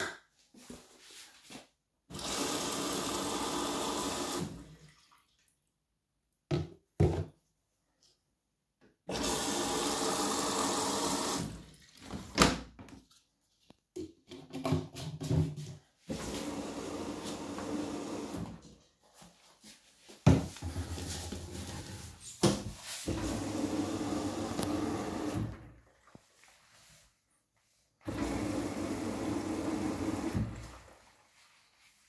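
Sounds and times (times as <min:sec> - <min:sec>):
water rushing into washing machine: 0:02.1 - 0:05.5, 0:09.1 - 0:12.5, 0:16.1 - 0:18.6, 0:23.0 - 0:26.8, 0:28.0 - 0:31.4.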